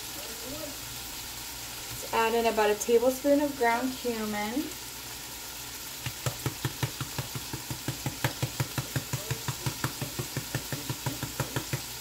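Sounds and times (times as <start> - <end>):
chicken sizzling in oil: 0.0 - 12.0
spice container tapping: 6.0 - 12.0.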